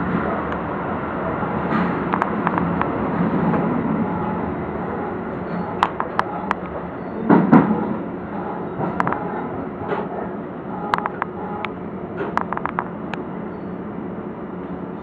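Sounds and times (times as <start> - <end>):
train rumble and hum: 0.0 - 15.0
sharp clicks: 10.9 - 11.3, 12.3 - 13.2.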